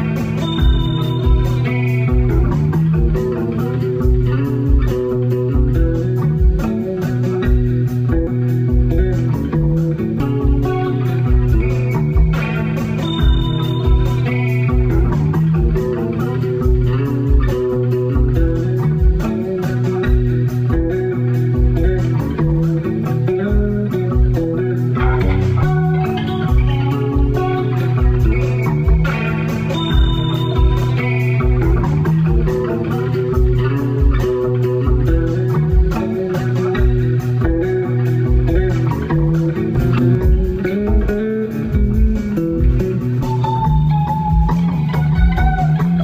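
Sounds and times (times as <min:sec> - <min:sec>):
electric bass: 0:00.0 - 0:46.0
electric guitar: 0:00.0 - 0:46.0
percussion with steady beat: 0:00.0 - 0:46.0.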